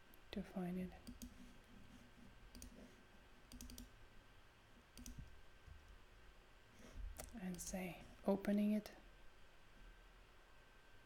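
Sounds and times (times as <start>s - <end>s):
computer mouse clicks: 1.0s - 1.4s, 2.5s - 2.9s, 3.5s - 3.9s, 5.0s - 5.3s, 7.2s - 7.8s.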